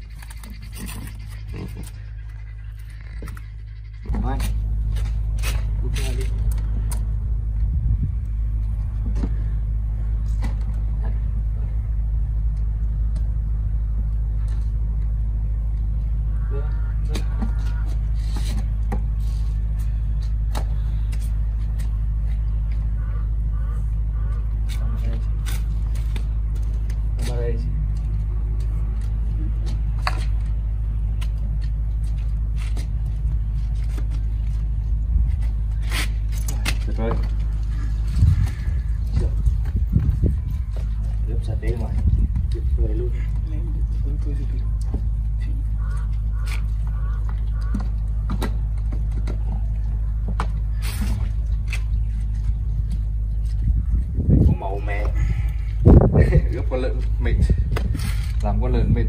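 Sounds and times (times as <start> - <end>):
steady low rumble: 0.0 - 59.0
knives scraping pig skin: 35.3 - 37.0.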